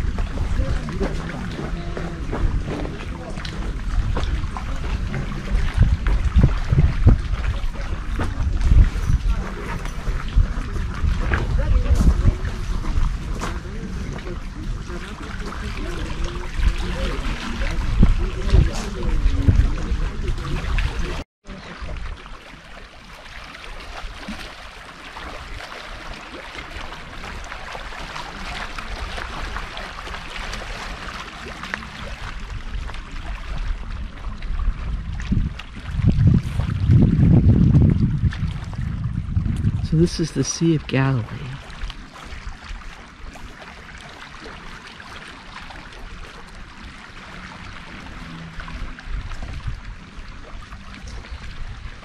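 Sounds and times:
low rumble: 0.0 - 21.2, 32.1 - 40.0
water lapping and splashing: 0.0 - 52.0.

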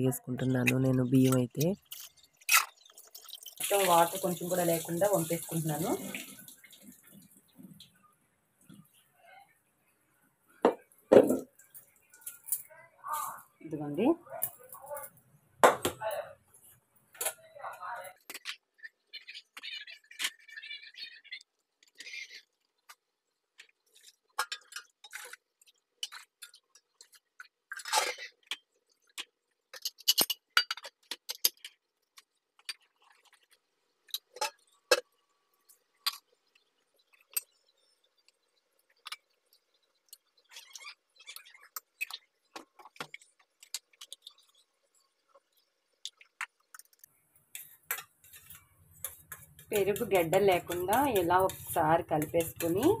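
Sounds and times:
metal kitchenware clinking: 47.6 - 53.0.

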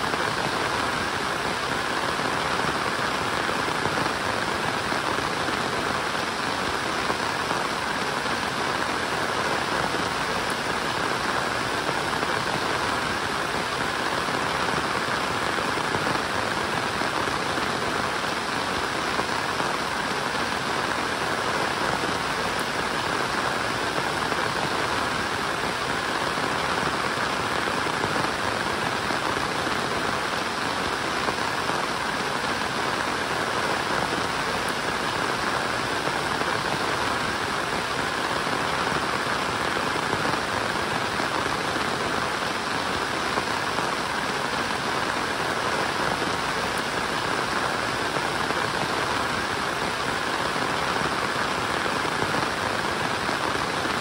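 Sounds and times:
steady rain hiss: 0.0 - 54.0.

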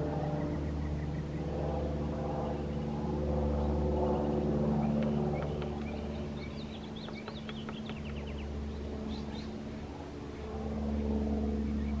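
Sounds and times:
vehicle engine humming: 4.4 - 9.5
woodpecker pecking on wood: 4.9 - 8.4.

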